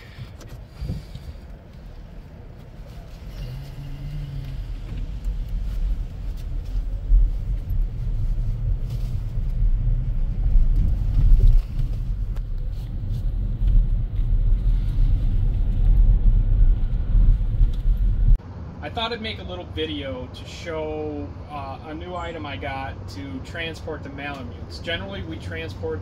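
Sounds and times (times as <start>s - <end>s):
road and tyre rumble in car: 0.0s - 26.0s.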